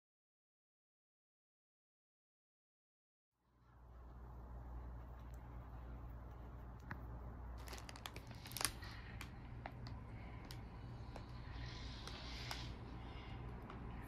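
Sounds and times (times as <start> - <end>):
faint low hum: 3.4 - 14.0.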